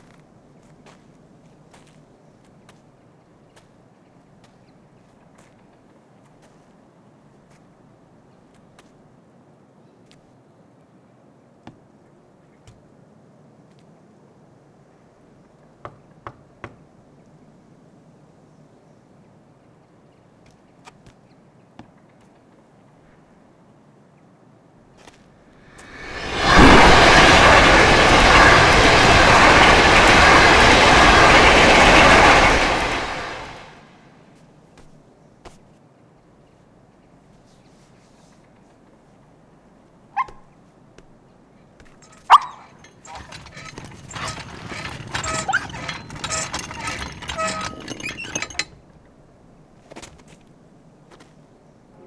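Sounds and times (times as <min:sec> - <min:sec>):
train rushing past: 0:25.5 - 0:34.2, 0:42.0 - 0:49.1
handcar clattering on rails: 0:25.6 - 0:33.8, 0:41.6 - 0:50.4
short squeaks: 0:42.0 - 0:49.0.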